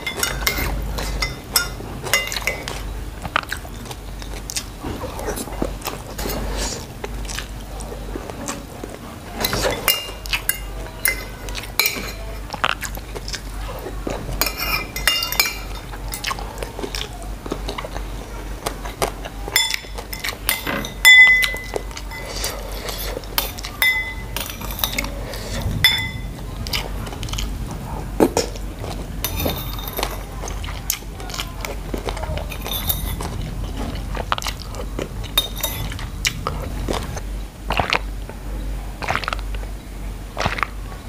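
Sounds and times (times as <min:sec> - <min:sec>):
cutlery clinking on ceramic plate: 0:00.0 - 0:02.8, 0:09.4 - 0:12.3, 0:14.4 - 0:16.3, 0:19.6 - 0:25.1, 0:25.8 - 0:26.3, 0:29.2 - 0:30.3, 0:32.4 - 0:33.4
chewing: 0:00.0 - 0:38.1, 0:39.0 - 0:39.7, 0:40.4 - 0:40.8.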